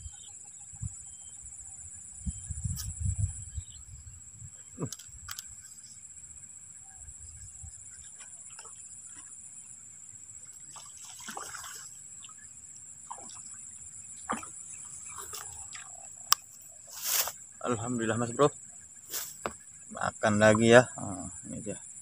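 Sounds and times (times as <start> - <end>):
insects droning: 0.0 - 22.0
fish splashing at water surface: 10.7 - 12.0.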